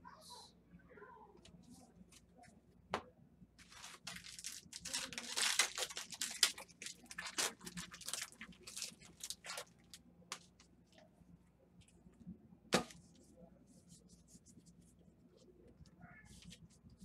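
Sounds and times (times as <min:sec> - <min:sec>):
foil wrapper crinkling and tearing: 0:03.6 - 0:10.0.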